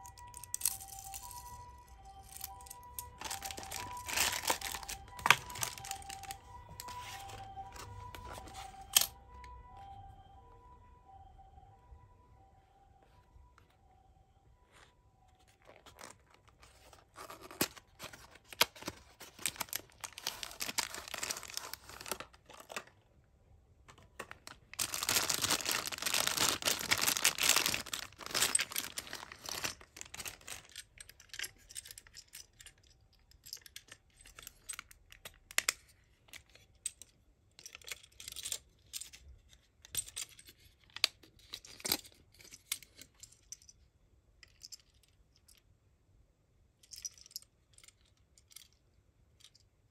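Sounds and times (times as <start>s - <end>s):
plastic bag crinkling and tearing: 2.1s - 8.2s, 15.6s - 22.8s, 24.2s - 30.7s.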